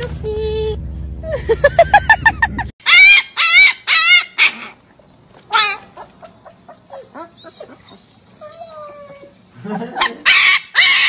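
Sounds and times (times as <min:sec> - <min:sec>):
puppy yelping: 0:02.8 - 0:09.4, 0:10.0 - 0:11.0
puppy howling: 0:05.5 - 0:09.3, 0:10.0 - 0:11.0.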